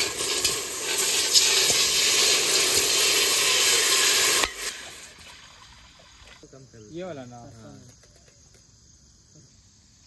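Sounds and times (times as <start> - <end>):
water sizzling on hot metal: 0.0 - 6.4.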